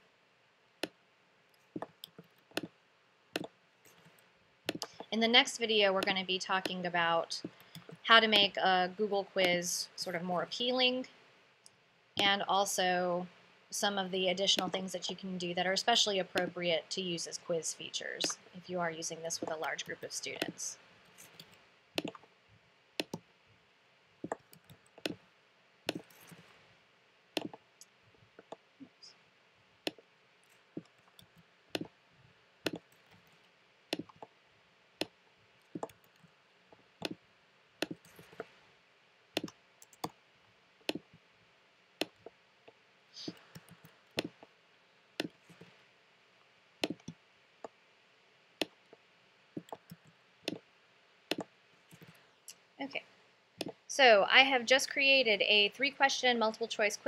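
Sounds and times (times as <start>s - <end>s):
mouse and keyboard clicks: 3.4s - 5.1s, 21.2s - 22.2s, 25.9s - 26.4s, 32.7s - 33.4s, 39.4s - 40.1s, 51.3s - 52.2s.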